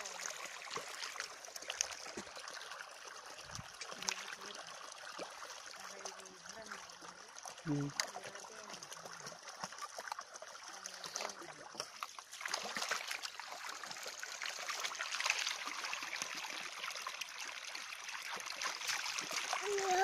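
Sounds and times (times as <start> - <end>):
water pouring from pipe: 0.0 - 20.0
feet splashing through water: 7.7 - 16.6, 18.2 - 20.0.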